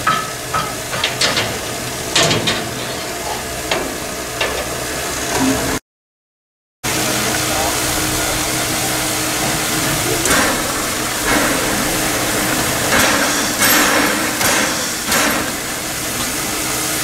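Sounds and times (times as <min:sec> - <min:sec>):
steady steam hiss: 0:00.0 - 0:05.4, 0:06.9 - 0:17.0
low hum: 0:06.9 - 0:17.0
bursts of hissing and knocking: 0:07.5 - 0:17.0.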